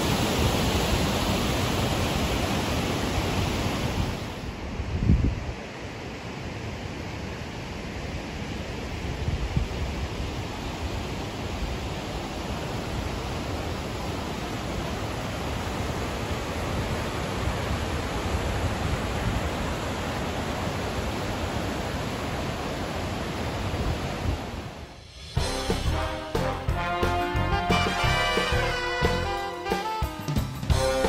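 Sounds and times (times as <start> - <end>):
water rushing over boulders: 0.0 - 4.7, 6.0 - 25.0.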